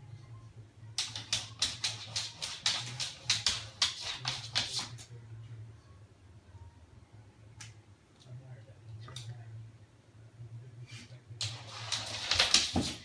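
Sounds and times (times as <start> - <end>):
dog claws clicking on floor: 1.0 - 5.0, 11.4 - 13.0.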